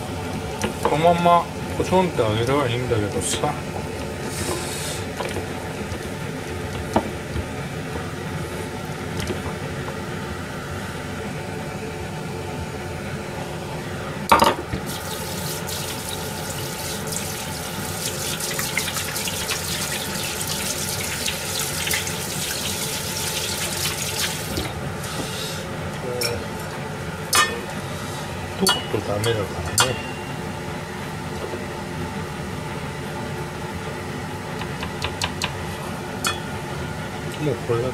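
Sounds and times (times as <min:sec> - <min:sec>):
steady hum: 0:00.0 - 0:37.9
vegetables sizzling in hot oil: 0:14.8 - 0:25.5.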